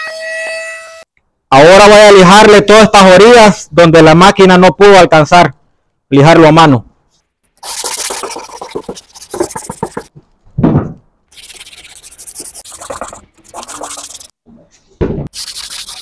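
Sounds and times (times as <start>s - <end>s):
sandpaper scratching: 7.6s - 10.1s, 11.3s - 14.3s, 15.3s - 16.0s.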